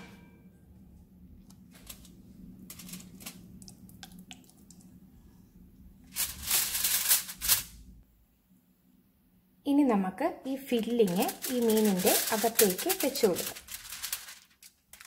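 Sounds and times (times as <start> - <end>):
aluminium foil crinkling: 1.7 - 4.4, 6.1 - 7.8, 10.6 - 15.0.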